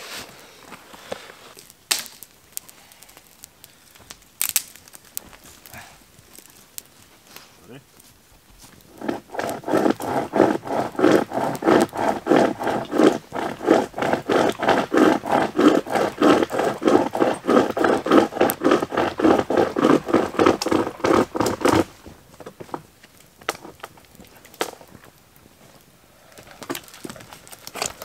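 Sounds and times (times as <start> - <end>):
hand saw cutting wood: 8.9 - 21.9.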